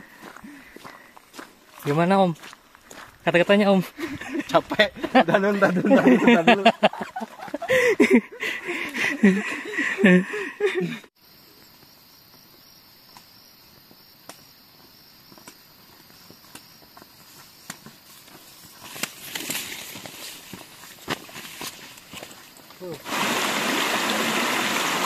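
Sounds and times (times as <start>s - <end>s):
insects droning high-pitched buzz: 0.0s - 25.0s
voices: 3.3s - 11.0s.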